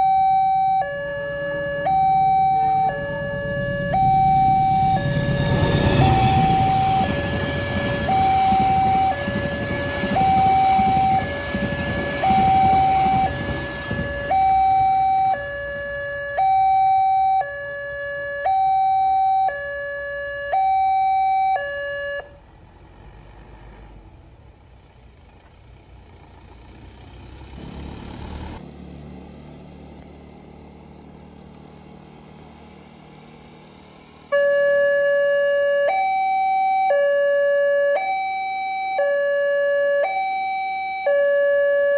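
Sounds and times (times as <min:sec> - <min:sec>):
level crossing two-tone alarm: 0:00.0 - 0:22.3, 0:34.3 - 0:41.9
low traffic noise: 0:00.0 - 0:36.0
passenger train rumbling: 0:00.9 - 0:16.6.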